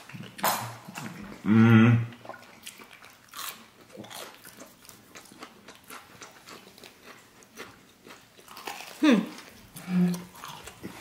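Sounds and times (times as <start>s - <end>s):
person chewing: 0.0s - 11.0s.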